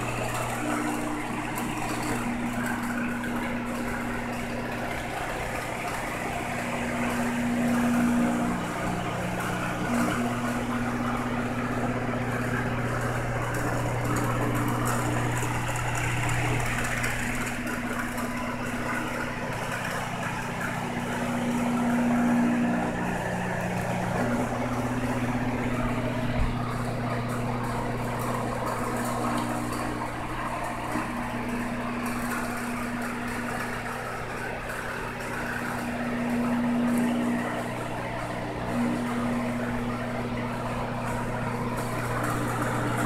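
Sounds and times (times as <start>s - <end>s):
aquarium pump humming: 0.0s - 43.0s
water noise: 0.0s - 43.0s.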